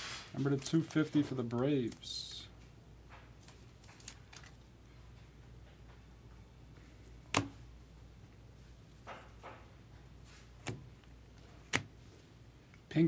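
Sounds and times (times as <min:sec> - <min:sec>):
plastic sleeve rustling: 0:00.0 - 0:02.5, 0:03.4 - 0:04.7.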